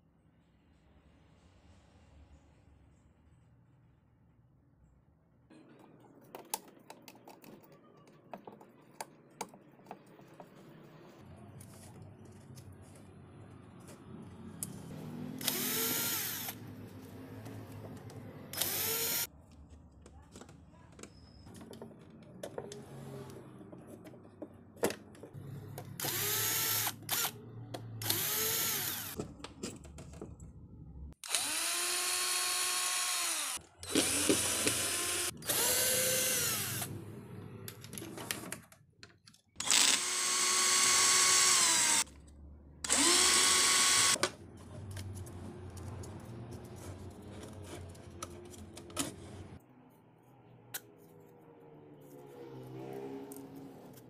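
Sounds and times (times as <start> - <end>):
electric screwdriver whining: 15.4 - 16.6, 18.5 - 19.3, 26.0 - 27.4, 28.0 - 29.2, 31.2 - 36.9, 39.6 - 42.1, 42.8 - 44.2.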